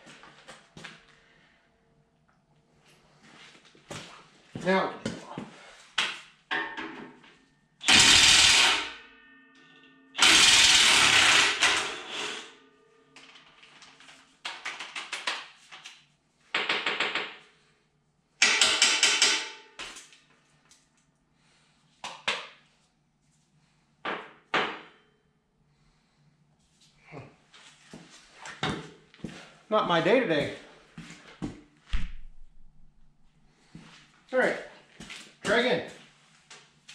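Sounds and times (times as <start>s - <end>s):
impact wrench hammering bolts: 7.8s - 9.0s, 10.2s - 12.5s, 18.4s - 20.0s.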